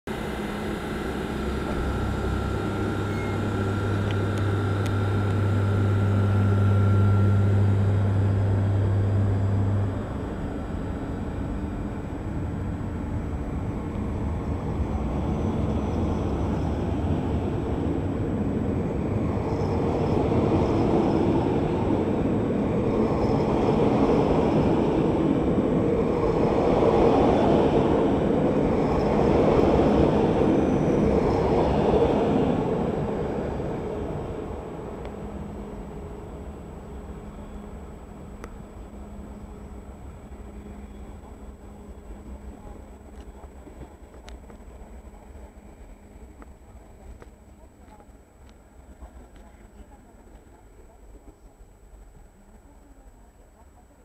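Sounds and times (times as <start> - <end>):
train wheels rolling on rails: 0.1 - 53.7
locomotive electrical hum: 0.1 - 54.0
thin high tone: 0.6 - 8.3.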